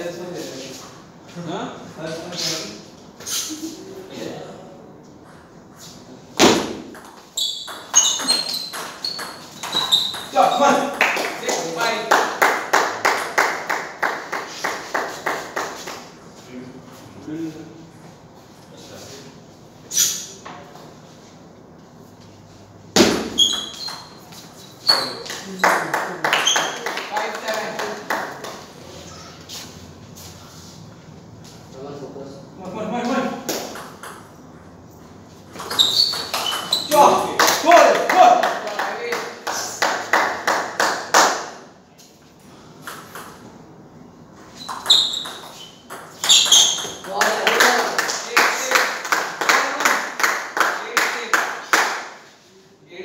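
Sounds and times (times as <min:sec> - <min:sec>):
short high squeaks: 0:07.4 - 0:10.6, 0:19.9 - 0:20.4, 0:23.3 - 0:25.3, 0:26.4 - 0:26.9, 0:35.6 - 0:37.1, 0:44.5 - 0:47.1.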